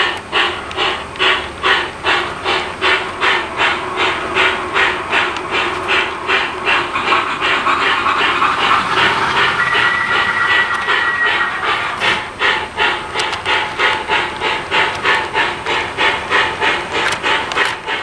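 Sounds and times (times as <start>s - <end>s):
model steam locomotive chuffing: 0.0s - 18.0s
steady high tone: 5.8s - 12.8s.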